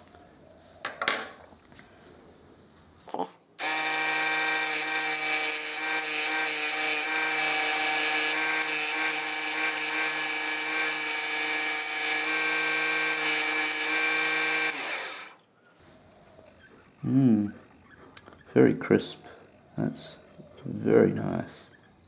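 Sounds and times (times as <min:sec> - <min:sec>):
lathe motor whining: 0:03.6 - 0:15.4.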